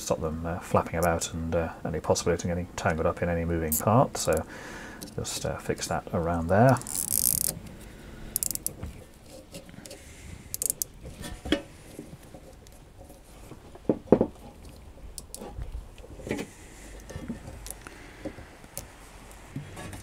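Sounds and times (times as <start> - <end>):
cable tie ratchet clicks: 6.7 - 7.6, 8.4 - 8.8, 10.5 - 11.0.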